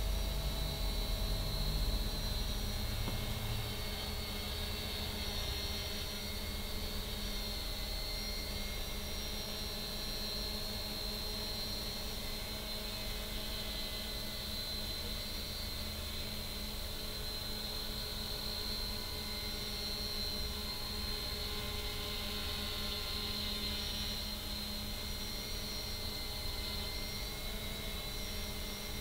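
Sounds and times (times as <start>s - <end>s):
quadcopter motors whining: 0.0s - 29.0s.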